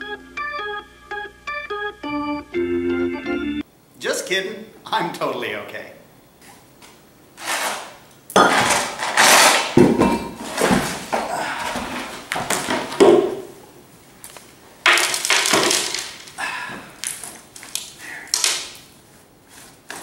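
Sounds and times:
concrete chunks and board clattering: 14.8 - 16.4.

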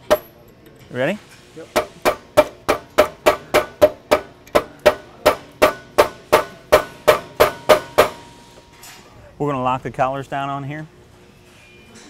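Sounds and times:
hammer striking metal shaft: 0.0 - 0.4, 1.8 - 8.6.

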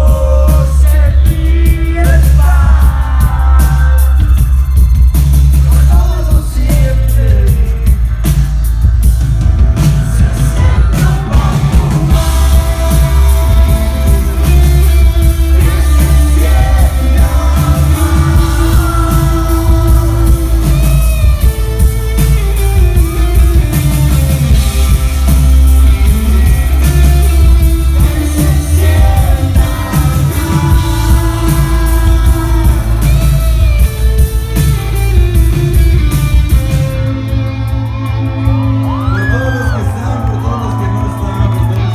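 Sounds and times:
rock band playing loudly: 0.0 - 41.9
electric guitar melodic lines: 8.8 - 41.9.

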